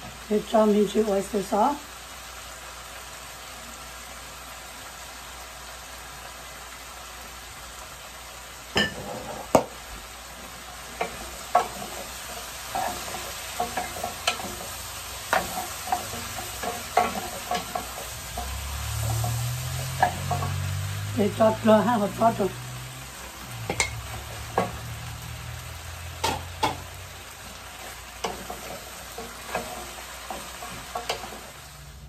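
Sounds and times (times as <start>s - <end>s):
vegetables sizzling in a pan: 0.0s - 32.0s
spoons scraping a pan: 10.8s - 20.7s, 26.2s - 31.6s.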